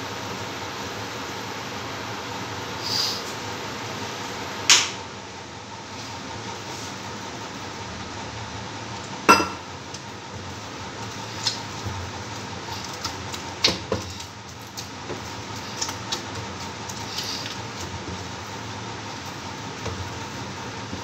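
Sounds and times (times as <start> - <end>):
steady background hum: 0.0 - 21.0
loud ringing clank: 9.3 - 9.7.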